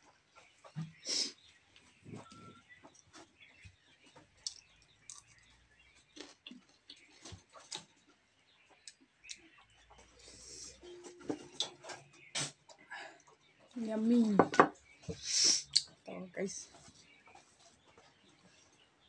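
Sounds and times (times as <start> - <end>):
chewing and lip-smacking: 4.4 - 8.2.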